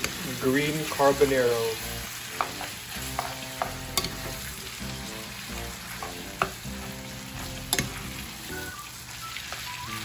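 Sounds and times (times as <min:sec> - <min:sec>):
food sizzling in a skillet: 0:00.0 - 0:10.0
spatula stirring and tossing food: 0:00.0 - 0:10.0
spatula clicking against pan: 0:02.4 - 0:04.3, 0:07.7 - 0:08.0.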